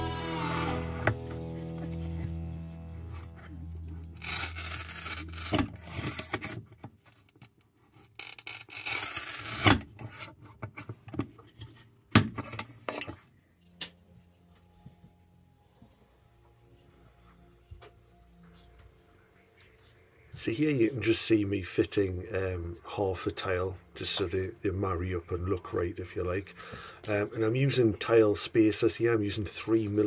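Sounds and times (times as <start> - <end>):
tile cutter wheel rasping: 4.1 - 6.6, 8.2 - 10.2.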